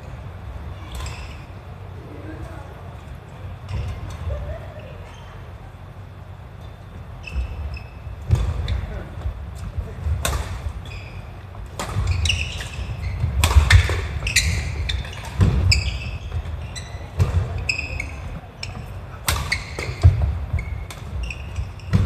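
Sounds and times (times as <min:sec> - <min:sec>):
shoes squeaking on court: 0:00.8 - 0:01.6, 0:03.1 - 0:05.6, 0:06.5 - 0:22.0
racket striking shuttlecock: 0:11.7 - 0:16.0, 0:19.2 - 0:21.2.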